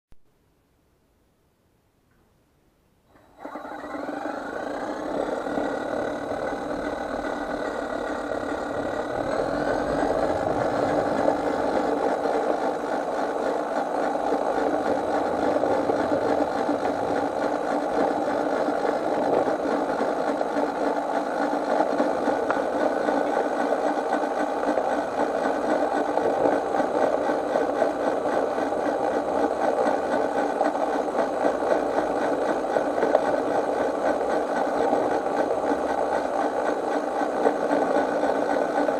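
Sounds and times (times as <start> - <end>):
model train whine and rattle: 3.1 - 38.9.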